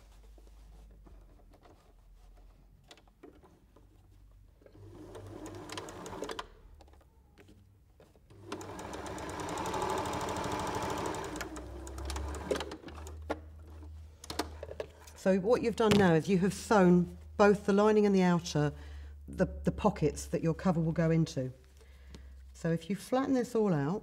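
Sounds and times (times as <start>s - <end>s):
sewing machine stitching: 4.6s - 6.6s, 8.3s - 13.2s.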